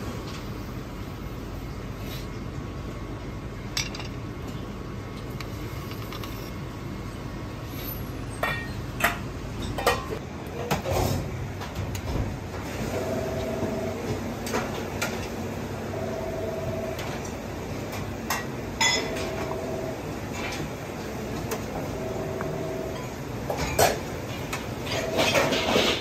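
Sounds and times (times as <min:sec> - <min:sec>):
low kitchen hum: 0:00.0 - 0:26.0
dishes and cutlery clinking: 0:18.3 - 0:19.5, 0:24.8 - 0:26.0.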